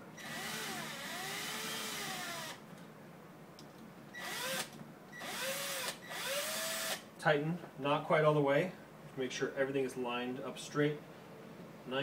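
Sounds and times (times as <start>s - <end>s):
cordless drill driving screws: 0.2s - 2.6s, 4.2s - 7.0s.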